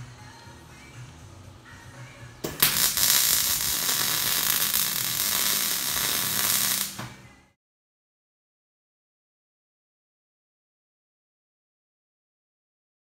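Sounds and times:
welding arc hissing: 2.5 - 7.0.

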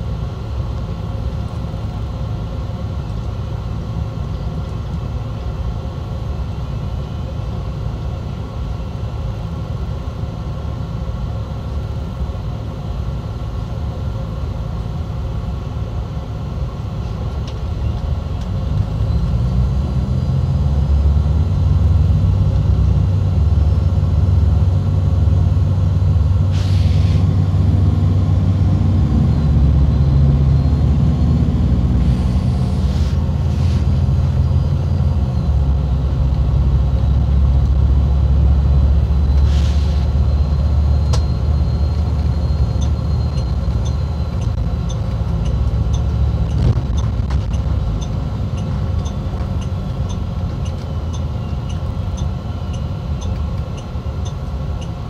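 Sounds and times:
coach engine and road rumble: 0.0 - 55.0
short air hisses: 26.5 - 27.3, 32.1 - 34.0, 39.4 - 40.1
turn signal ticking: 42.2 - 55.0.

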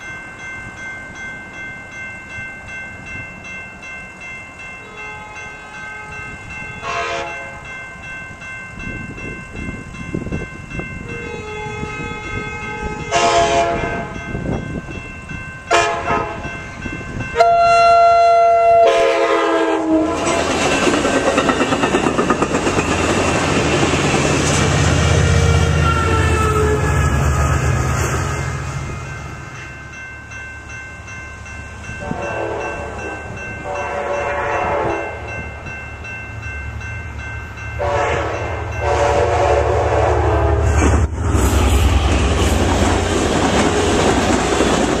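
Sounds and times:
train passing with rushing roar: 0.0 - 45.0
train horn blasts: 4.8 - 7.6, 11.1 - 14.2, 15.7 - 16.6, 17.3 - 20.5, 25.3 - 29.0, 32.0 - 35.3, 37.8 - 40.8
train wheels clattering on rails: 20.1 - 25.3, 40.8 - 45.0.

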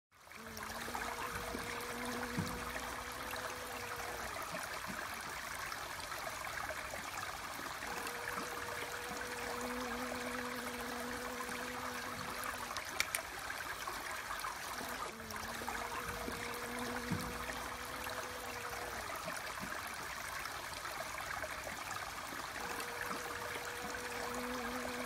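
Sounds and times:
running water babbling: 0.1 - 25.0
faint hum: 0.3 - 4.7, 7.8 - 13.2, 14.4 - 19.4, 22.5 - 25.0
small click: 12.9 - 13.3.

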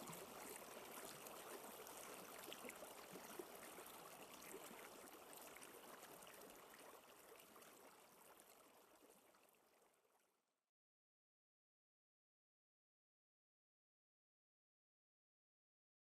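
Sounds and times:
trickling water: 0.0 - 10.4.

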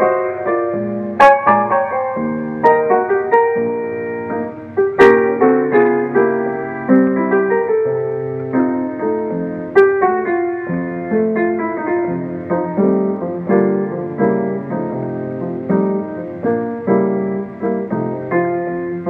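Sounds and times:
solo piano playing: 0.0 - 19.0.

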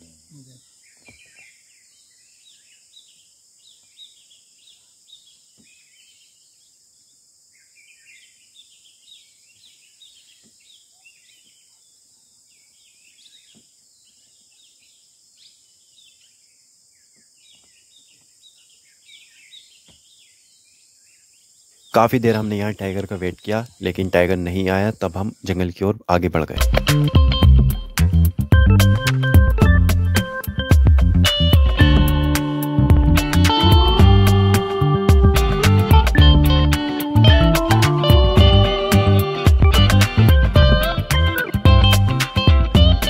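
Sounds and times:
small birds chirping: 0.0 - 25.9.

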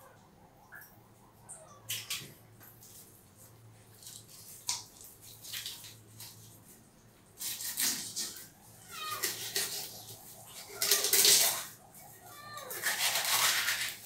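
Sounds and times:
knife scraping fish scales: 7.4 - 8.5, 9.1 - 11.7, 12.6 - 14.0.

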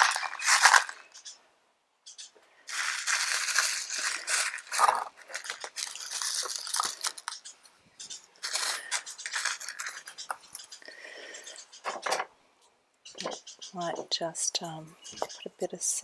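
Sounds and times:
pebbles pouring into plastic pot: 0.0 - 1.0, 2.7 - 7.3.

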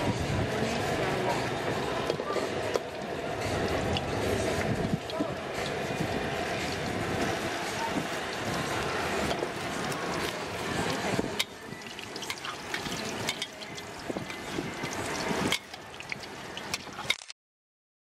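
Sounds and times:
deep-frying sizzle: 0.0 - 17.1
metal ladle scraping wok: 8.5 - 17.2.

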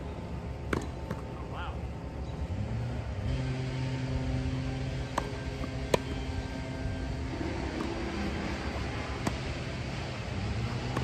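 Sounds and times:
engine-like hum: 0.0 - 11.0
tennis ball hits: 0.6 - 1.3, 5.0 - 6.2, 7.6 - 8.2, 9.0 - 9.6, 10.7 - 11.0.

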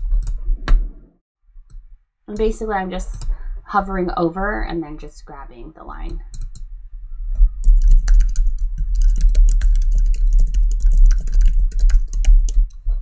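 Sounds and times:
keyboard typing clicks: 7.6 - 12.8.

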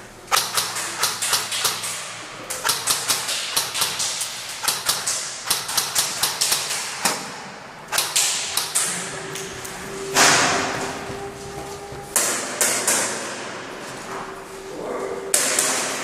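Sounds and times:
airsoft guns firing: 0.3 - 9.1.

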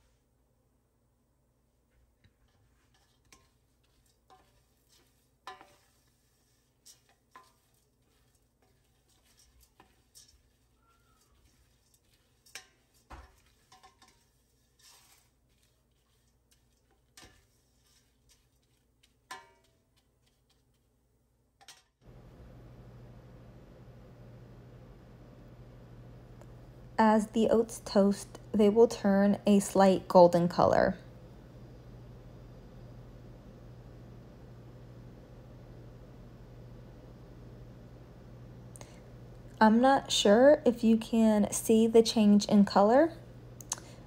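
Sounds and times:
spoon scraping and tapping pan: 2.2 - 20.9, 21.6 - 22.0.

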